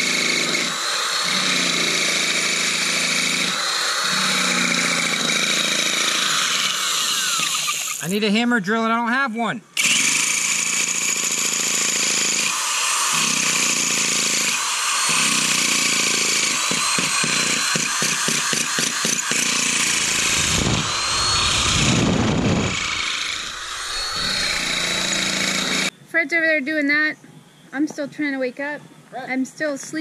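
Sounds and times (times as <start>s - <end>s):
electric drill grinding: 0.0s - 8.1s, 9.8s - 25.9s
deeper rumble: 19.8s - 25.9s.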